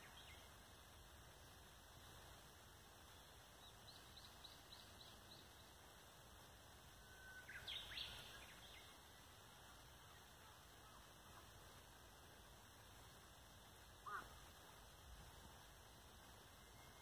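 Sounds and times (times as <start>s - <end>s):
outdoor hiss: 0.0s - 17.0s
bird chirping: 3.2s - 5.8s, 7.0s - 9.3s.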